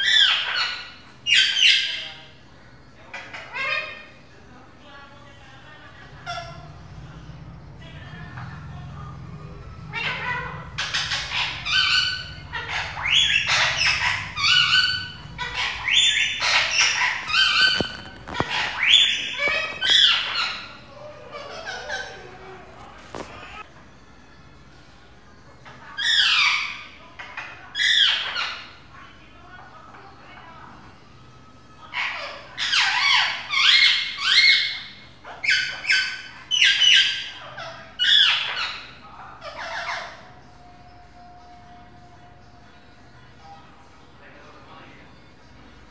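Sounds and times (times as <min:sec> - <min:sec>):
parakeet calling: 0:00.0 - 0:04.4, 0:05.6 - 0:23.7, 0:25.7 - 0:29.0, 0:31.8 - 0:41.6.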